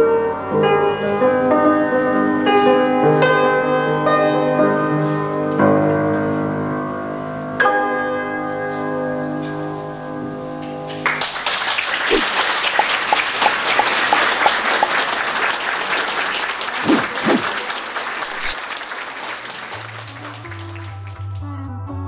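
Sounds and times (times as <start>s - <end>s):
music: 0.0s - 11.2s, 19.6s - 22.0s
audience applauding: 10.9s - 21.5s.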